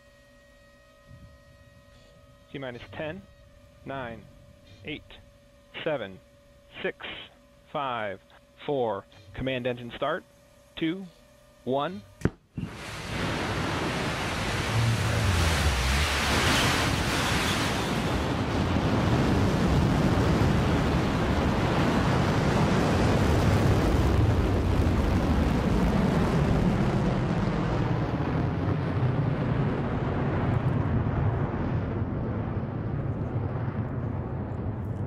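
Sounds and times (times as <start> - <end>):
rocket engine rumble: 12.6 - 35.0.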